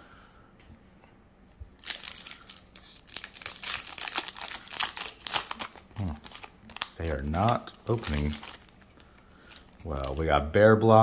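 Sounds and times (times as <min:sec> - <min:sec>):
foil wrapper crinkling and tearing: 0:01.8 - 0:10.5.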